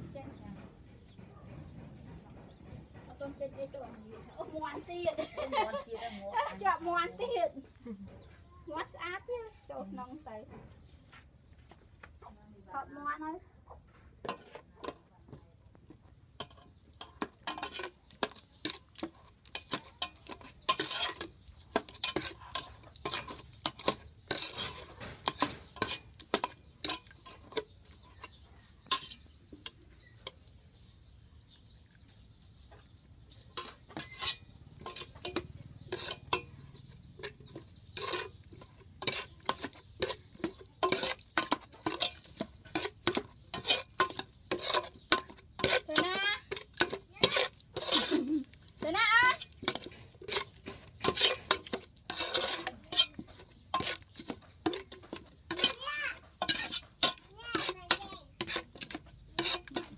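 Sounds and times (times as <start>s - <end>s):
utensils clinking against pots: 16.4s - 30.5s, 33.5s - 59.9s.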